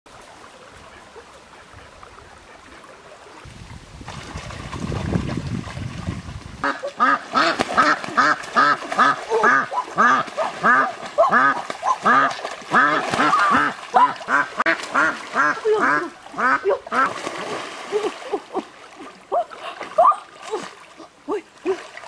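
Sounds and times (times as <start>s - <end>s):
water splashing: 0.1s - 22.0s
ducks quacking rapidly: 6.6s - 17.2s.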